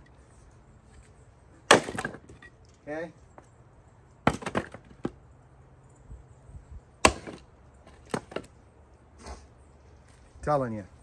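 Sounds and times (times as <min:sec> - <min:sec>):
axe chopping firewood: 0:01.6 - 0:02.5, 0:04.2 - 0:05.2, 0:07.0 - 0:08.6
split wood clattering: 0:01.6 - 0:02.7, 0:04.2 - 0:05.2, 0:07.0 - 0:08.5.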